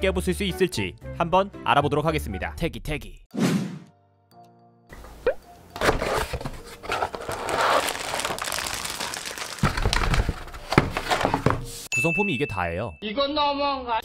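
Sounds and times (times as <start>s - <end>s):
plastic wrap crinkling: 5.8s - 11.5s
cardboard rustling and scraping: 5.8s - 11.9s.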